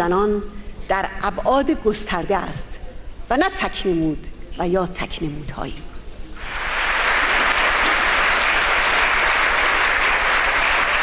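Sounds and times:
large audience applauding: 6.4s - 11.0s.

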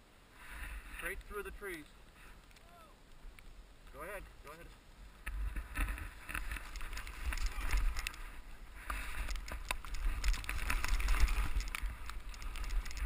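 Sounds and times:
wind rumble on microphone: 5.2s - 13.0s
skis sliding through powder snow: 5.4s - 13.0s.

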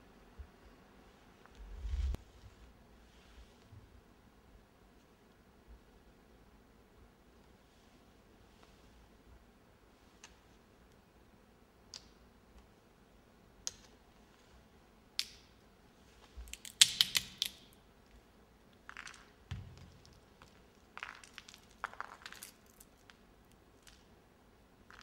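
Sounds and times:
nutcracker clicks: 15.2s - 15.5s, 16.4s - 17.8s
nutshell cracking: 16.4s - 17.8s.

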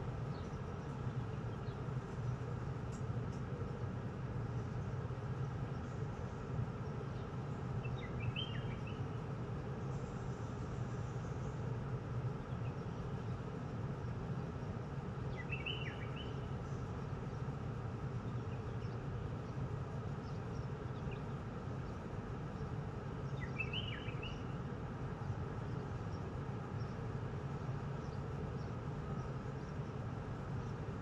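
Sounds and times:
low outdoor background hum: 0.0s - 31.0s
bird chirps: 7.8s - 9.1s, 15.3s - 16.4s, 23.3s - 24.6s.

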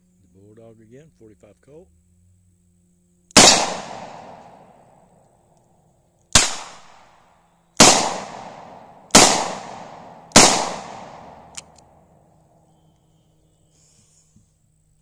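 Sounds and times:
revolver shots with echo: 3.4s - 4.7s, 7.8s - 11.5s
sharp click: 11.4s - 11.9s.

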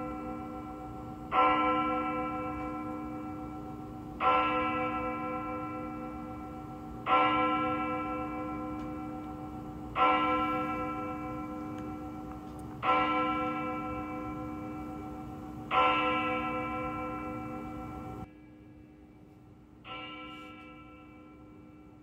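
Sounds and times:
bell tolling: 19.9s - 22.0s.

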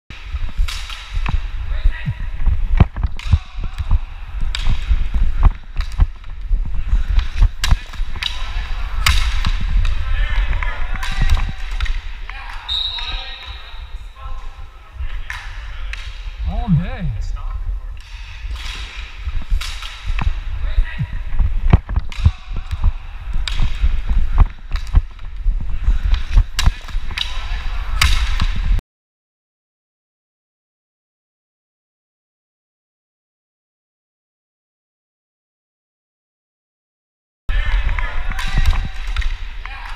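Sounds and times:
stick and ball clacks: 0.3s - 1.4s, 2.7s - 12.6s, 15.2s - 16.4s, 18.0s - 20.4s, 21.6s - 28.7s, 37.8s - 39.9s
steady low rumble: 16.3s - 18.4s.

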